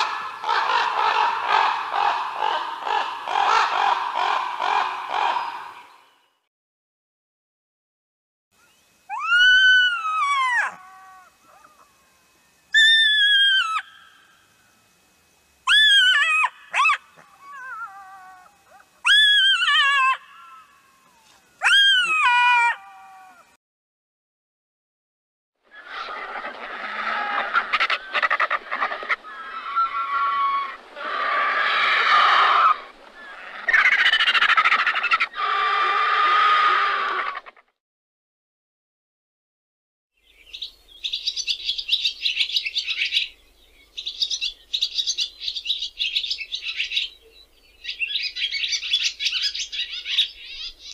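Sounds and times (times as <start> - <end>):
vulture calls: 0.0 - 5.9, 15.7 - 23.4, 25.6 - 37.6
jackal crying: 9.1 - 12.0, 15.7 - 23.4, 25.8 - 37.6.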